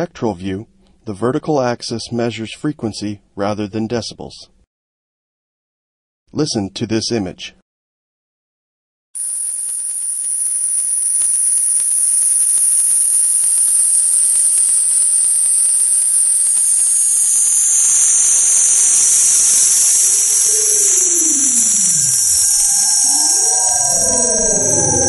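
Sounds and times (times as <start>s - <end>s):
loud high-pitched hiss: 9.2s - 25.0s
sweeping tone: 12.5s - 25.0s.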